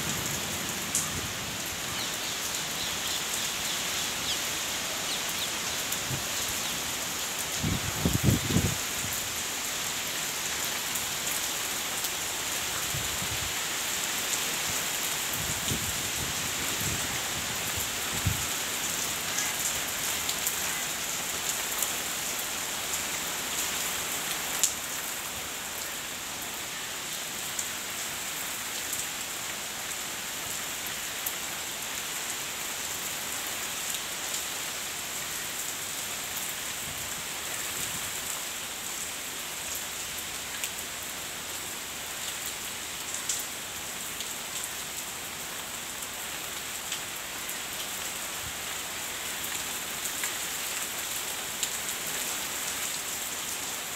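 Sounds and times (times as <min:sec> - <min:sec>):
heavy rain on foliage: 0:00.0 - 0:53.9
sharp ticks of raindrops: 0:00.1 - 0:08.4, 0:24.2 - 0:24.9, 0:42.2 - 0:43.5.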